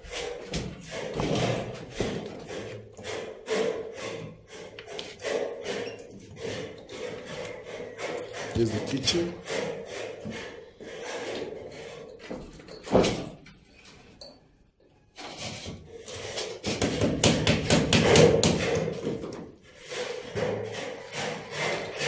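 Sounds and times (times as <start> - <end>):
knocking and clattering: 15.4 - 22.0.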